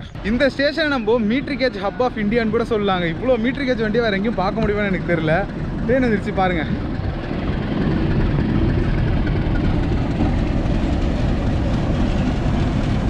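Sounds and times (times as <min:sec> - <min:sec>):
diesel locomotive engine rumble: 0:00.0 - 0:13.0
train wheels on rails: 0:00.0 - 0:13.0.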